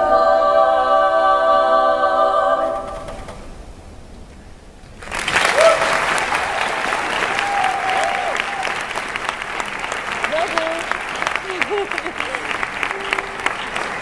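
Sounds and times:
audience clapping: 5.0 - 14.0
people whooping and cheering: 5.4 - 9.0.

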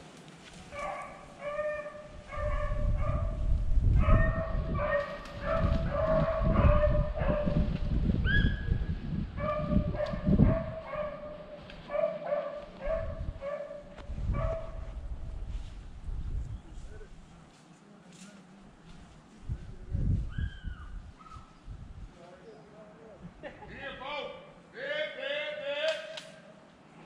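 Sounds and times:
dog yelping: 0.8 - 2.8, 20.4 - 21.6
low rumbling noise: 12.8 - 17.4.

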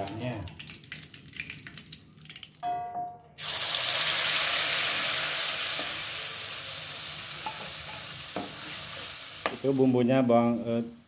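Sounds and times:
spice paste sizzling in hot oil: 3.4 - 10.9.

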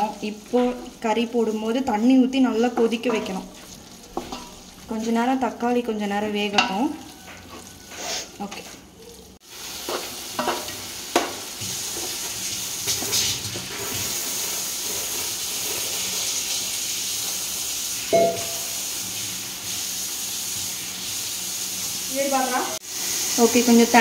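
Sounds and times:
wooden spatula scraping a pot: 0.0 - 5.4, 6.3 - 8.8, 11.6 - 17.3
food sizzling in a pot: 0.0 - 24.0.

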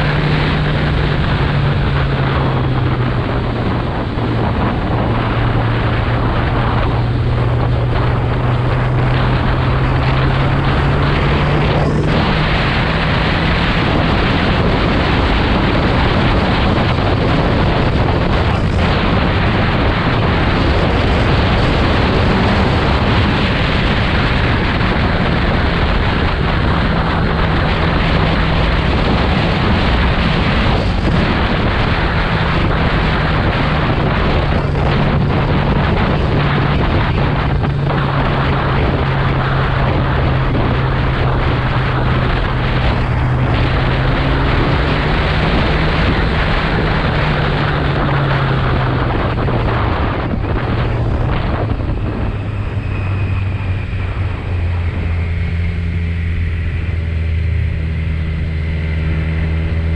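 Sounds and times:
motorcycle engine running: 0.0 - 59.9
wind noise on microphone: 0.0 - 59.9.

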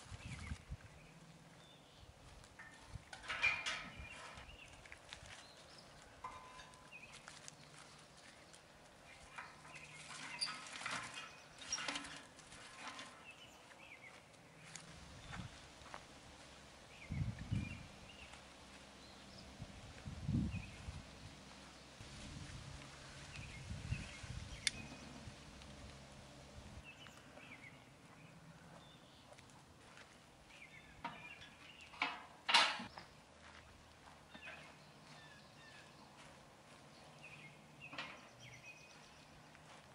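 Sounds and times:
faint birds chirping: 0.0 - 22.0, 22.9 - 39.9
sticks clattering on metal grate: 2.6 - 4.5, 6.2 - 6.9, 9.3 - 13.2, 31.0 - 32.9.

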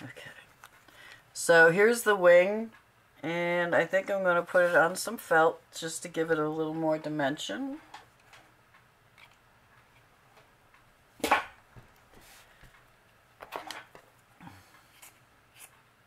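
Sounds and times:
soft handling sounds: 0.0 - 1.2, 11.8 - 15.9.

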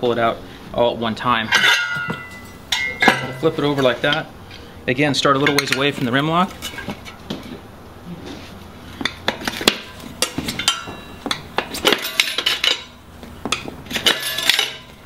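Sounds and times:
tire spoons clinking on metal rim: 1.4 - 4.3, 5.2 - 7.2, 9.0 - 15.0.

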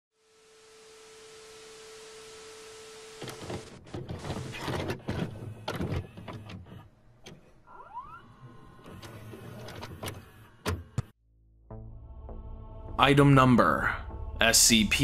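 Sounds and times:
television static hiss: 0.2 - 3.7
vcr mechanical clicks and clunks: 3.2 - 7.6.

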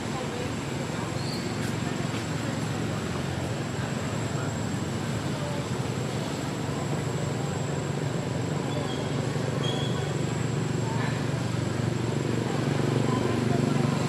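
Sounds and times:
outdoor background rumble: 0.0 - 14.0.

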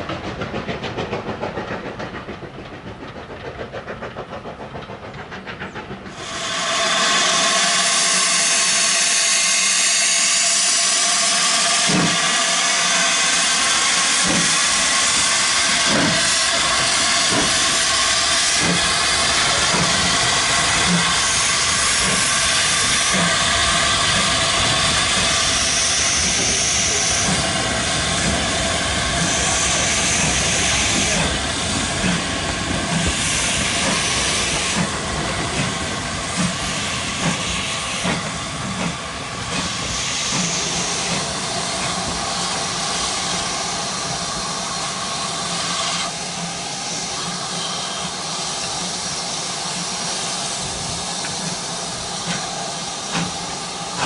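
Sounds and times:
distant train rattling past: 0.0 - 54.0
steam locomotive exhaust beats: 0.0 - 54.0
loud hiss of escaping steam: 6.1 - 54.0.

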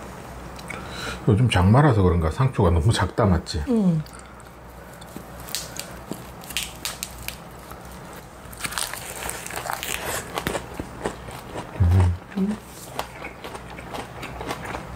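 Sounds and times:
lettuce leaves crinkling: 4.8 - 10.6
crisp bites into leaves: 5.4 - 10.4.

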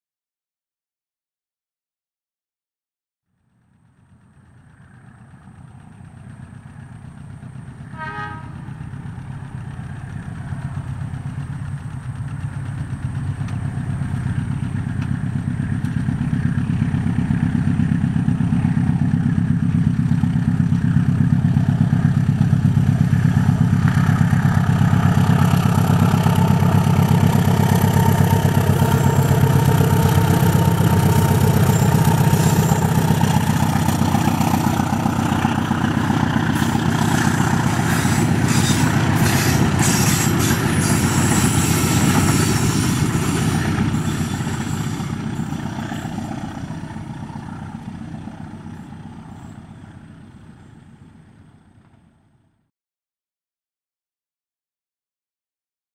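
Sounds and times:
diesel locomotive running: 3.5 - 52.4
locomotive horn: 7.8 - 9.1, 27.5 - 33.2, 36.5 - 46.2.

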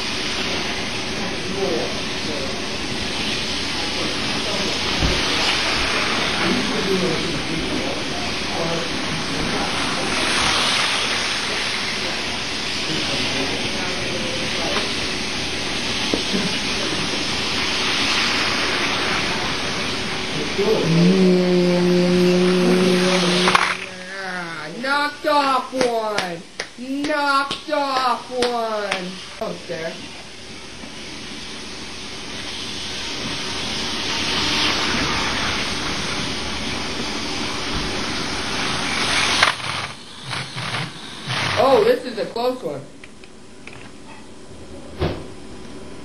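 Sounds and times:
model train running on track: 0.0 - 15.0, 15.9 - 23.9, 32.4 - 42.1.

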